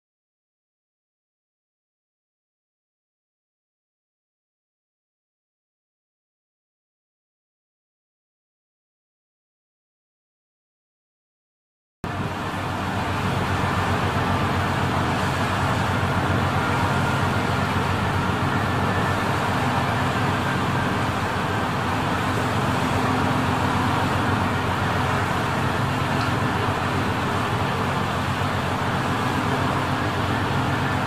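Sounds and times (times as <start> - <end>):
wind: 12.0 - 31.0
boat engines droning: 12.1 - 31.0
rushing water: 12.1 - 31.0.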